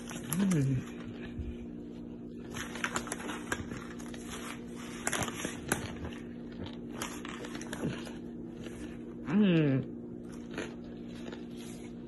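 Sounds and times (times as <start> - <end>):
plastic bag crinkling: 2.3 - 8.3.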